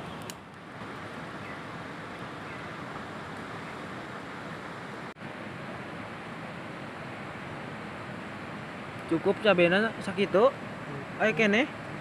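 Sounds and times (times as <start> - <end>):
river rushing: 0.0 - 12.0.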